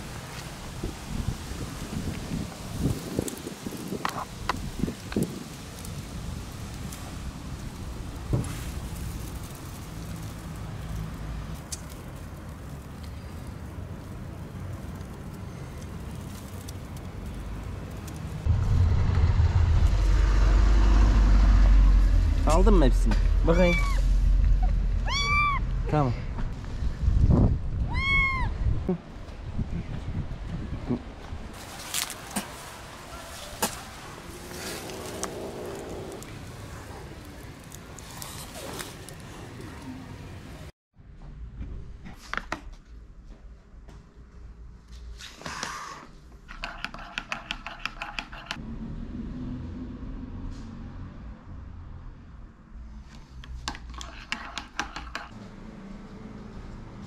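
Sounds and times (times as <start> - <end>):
outdoor background noise: 0.0 - 57.0
distant road traffic: 4.5 - 27.8, 31.0 - 42.0, 46.0 - 57.0
kittens mewing: 23.5 - 25.7.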